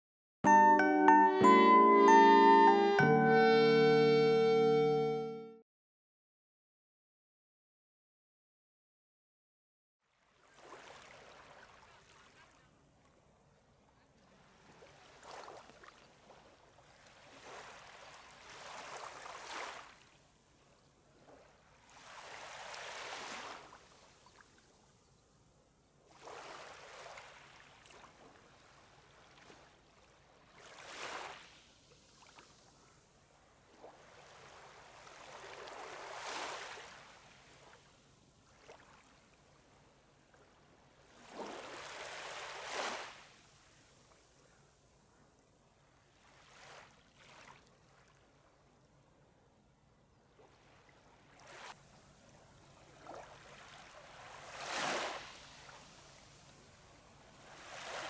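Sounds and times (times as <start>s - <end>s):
small waves washing onto sand: 14.4s - 20.3s, 21.2s - 24.4s, 26.1s - 32.7s, 33.6s - 37.8s, 41.0s - 43.9s, 50.5s - 58.0s.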